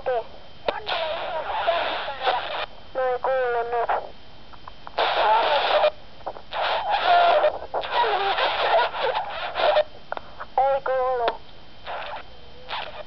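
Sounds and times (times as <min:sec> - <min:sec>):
distorted voice over radio: 0:00.0 - 0:04.1, 0:10.5 - 0:11.4
walkie-talkie static: 0:00.0 - 0:13.0.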